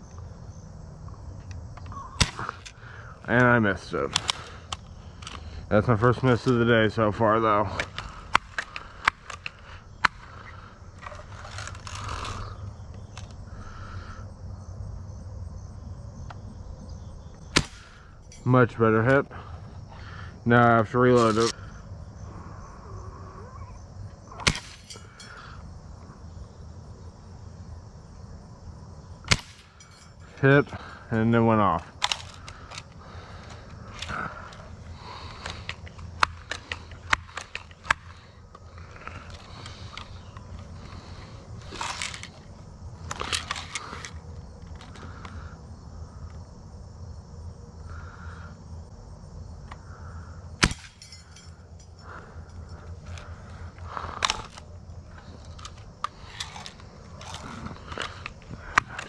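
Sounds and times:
gun handling clatter: 0:01.4 - 0:06.7, 0:07.7 - 0:13.4, 0:21.1 - 0:21.6, 0:24.4 - 0:25.5, 0:29.3 - 0:31.0, 0:31.7 - 0:45.4, 0:50.6 - 0:59.0.

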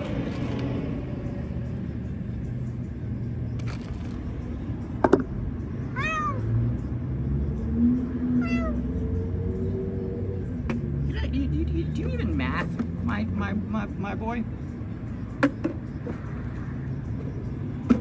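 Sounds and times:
cat meowing: 0:05.9 - 0:06.5, 0:08.3 - 0:08.9.

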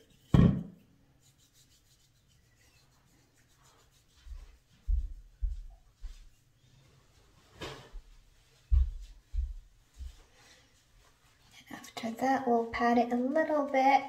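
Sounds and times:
thump: 0:00.3 - 0:00.7
hand rubbing on skin: 0:01.2 - 0:06.4
dull footsteps: 0:04.2 - 0:06.4, 0:07.5 - 0:11.4.

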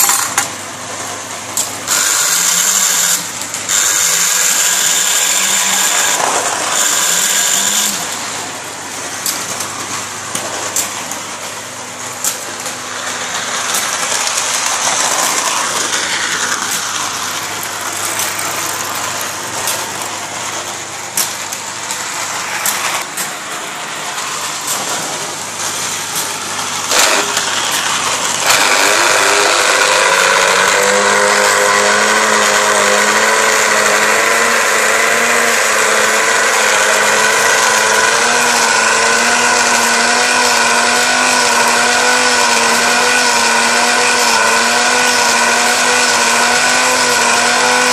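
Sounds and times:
small electric motors running: 0:00.0 - 0:47.9.

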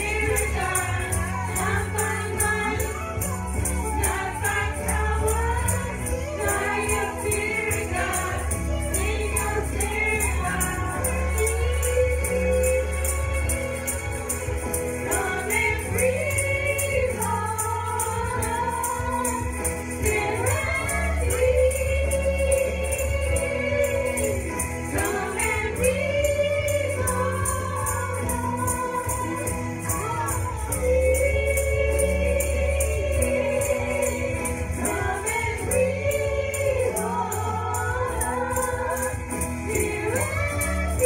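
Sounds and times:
group of young voices singing: 0:00.0 - 0:03.0, 0:03.7 - 0:13.9, 0:15.0 - 0:41.0.

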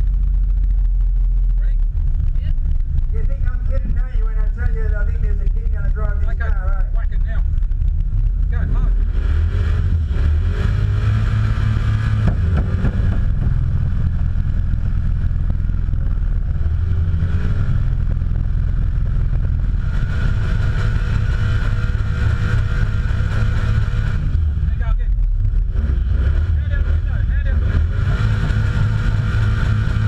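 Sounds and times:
engine revving high: 0:08.5 - 0:30.0.

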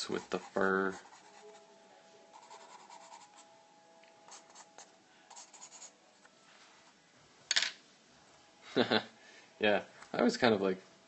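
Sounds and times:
pencil scratching on paper: 0:00.0 - 0:01.7, 0:02.3 - 0:03.4, 0:04.3 - 0:05.9.

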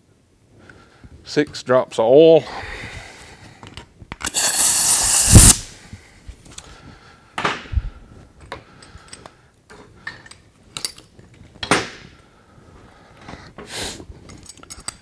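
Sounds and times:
air hammer hissing: 0:04.2 - 0:05.8
air hammer thud: 0:04.3 - 0:05.7.

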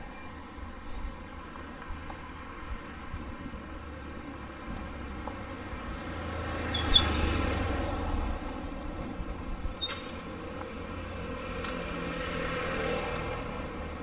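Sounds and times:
vehicle passing: 0:04.9 - 0:09.6, 0:10.8 - 0:14.0.

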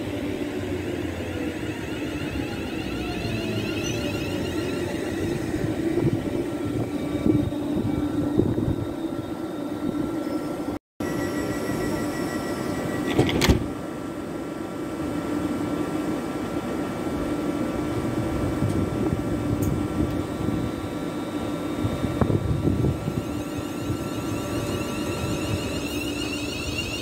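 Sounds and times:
train equipment humming: 0:00.0 - 0:27.0
faint high whine: 0:00.8 - 0:13.3, 0:20.3 - 0:27.0.

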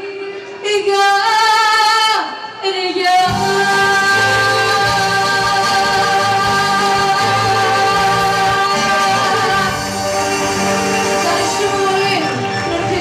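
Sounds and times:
woman singing into a microphone: 0:00.0 - 0:13.0
live band with bouzouki: 0:03.3 - 0:13.0.

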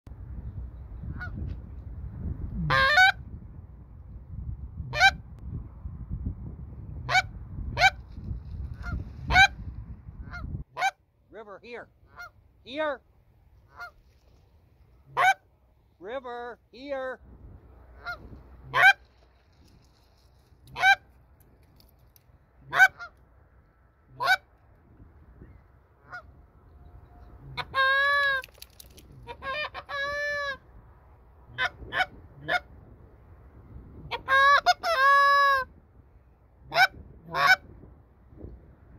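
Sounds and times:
goose call honks: 0:02.7 - 0:03.2, 0:04.9 - 0:05.2, 0:08.8 - 0:09.6, 0:10.2 - 0:11.0, 0:12.0 - 0:12.8, 0:13.7 - 0:14.0, 0:15.1 - 0:15.4, 0:18.0 - 0:19.0, 0:20.7 - 0:21.1, 0:22.6 - 0:23.2, 0:24.1 - 0:24.5, 0:26.0 - 0:26.3, 0:27.0 - 0:28.4, 0:29.2 - 0:30.6, 0:31.5 - 0:32.7, 0:34.1 - 0:35.7, 0:36.7 - 0:37.7.

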